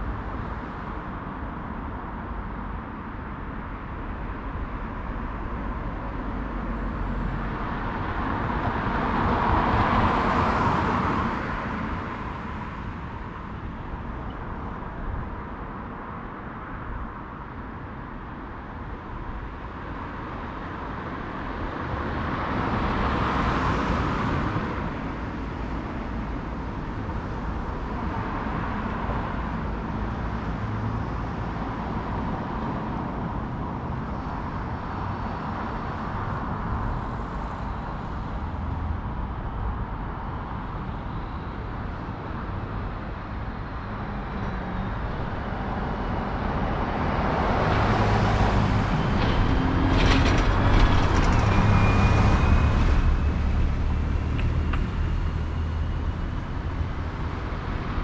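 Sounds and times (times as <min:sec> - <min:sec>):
low traffic hum: 0:00.0 - 0:58.0
cars driving past: 0:42.2 - 0:58.0.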